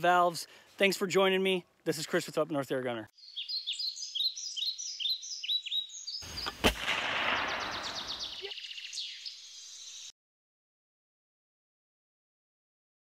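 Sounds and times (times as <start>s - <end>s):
birds chirping faintly: 2.9s - 10.1s
noise burst: 6.3s - 8.4s
sharp gunshot-like bang: 6.4s - 8.4s.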